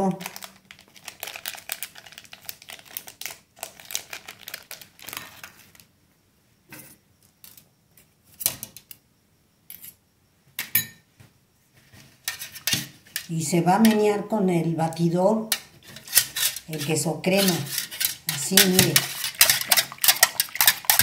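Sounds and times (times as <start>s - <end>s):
foil crinkling: 0.0s - 5.9s
spoon scraping metal mug: 12.3s - 14.0s, 15.5s - 21.0s.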